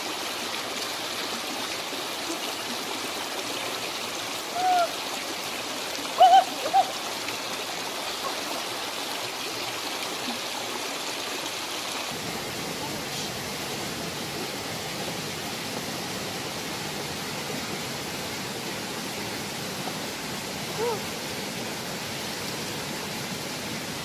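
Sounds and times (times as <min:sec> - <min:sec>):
stream running over rocks: 0:00.0 - 0:24.0
short high calls: 0:06.2 - 0:06.9.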